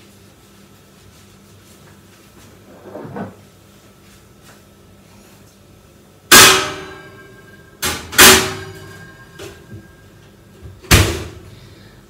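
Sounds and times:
metal oven clanging: 6.3 - 9.7.

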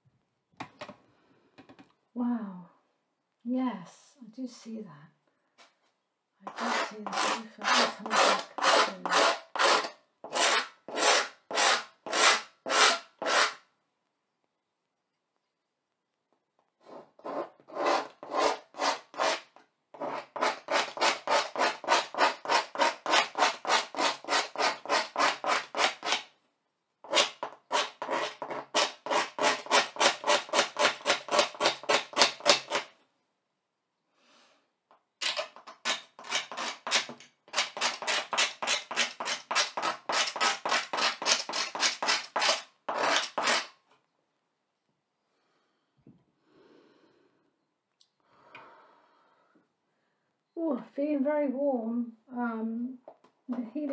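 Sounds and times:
pointed tool scratching a board: 6.5 - 13.6, 16.8 - 26.3, 27.0 - 32.9, 35.2 - 43.8.

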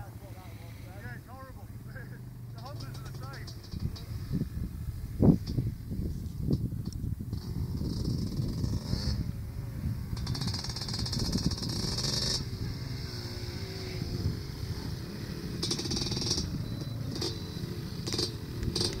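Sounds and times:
off-road engines running: 0.0 - 19.0.

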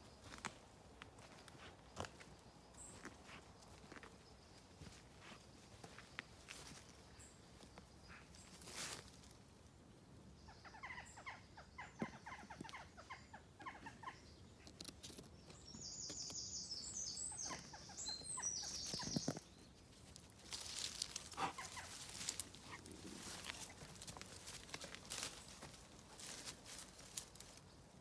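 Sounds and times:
songbird singing: 0.0 - 28.0
footsteps rustling through leaves: 20.2 - 27.7.

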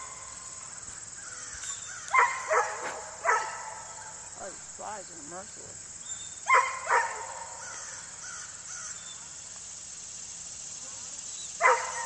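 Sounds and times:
high insect drone: 0.0 - 12.0
crow cawing: 1.2 - 2.5, 6.7 - 9.1.

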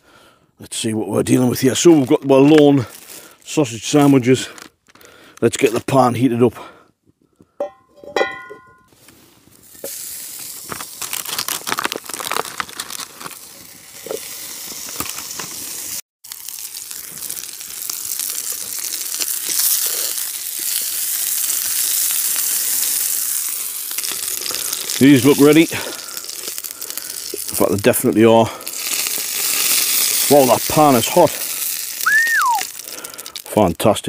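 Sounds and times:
sausages sizzling in a pan: 9.5 - 11.2, 13.0 - 33.6.

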